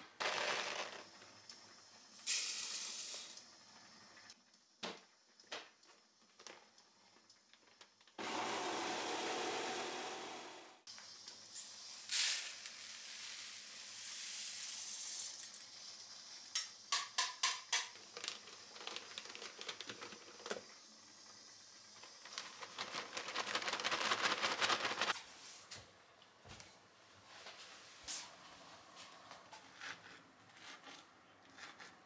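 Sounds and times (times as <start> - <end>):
plastic bag rustling: 22.1 - 25.2.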